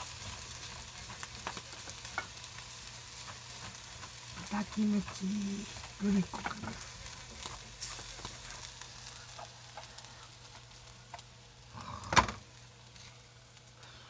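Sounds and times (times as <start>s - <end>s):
food sizzling in a pan: 0.0s - 14.0s
chopsticks clicking on pan: 0.2s - 2.4s.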